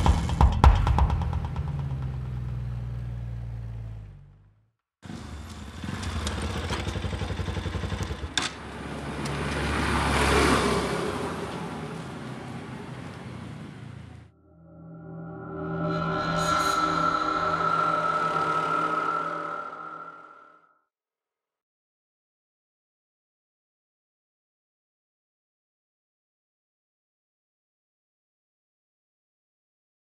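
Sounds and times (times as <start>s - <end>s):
motorcycle engine running: 0.0s - 9.2s
motorcycle passing by: 5.1s - 14.3s.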